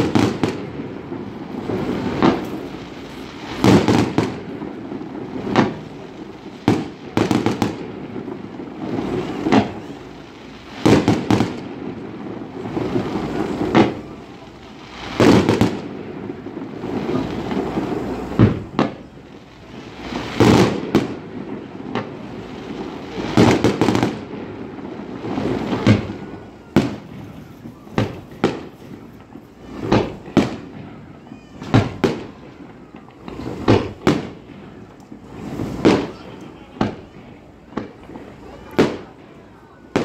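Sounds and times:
firework shells bursting: 0.0 - 19.2
firework crackling: 0.0 - 40.0.

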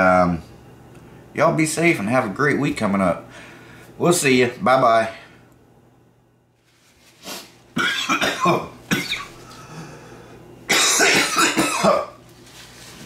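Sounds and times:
man coughing: 7.8 - 9.4, 10.7 - 12.2.

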